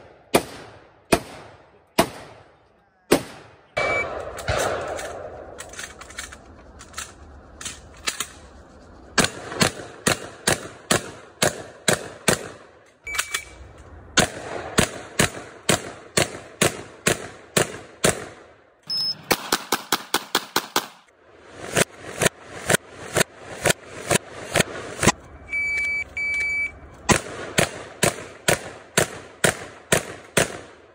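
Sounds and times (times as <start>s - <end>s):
shotgun firing rapid shots: 0.0s - 2.5s, 3.1s - 5.7s, 9.2s - 12.7s, 14.2s - 18.5s, 19.2s - 25.2s, 27.1s - 30.9s
short electronic beeps: 3.8s - 4.1s, 13.1s - 13.6s, 18.8s - 19.3s, 25.2s - 27.1s.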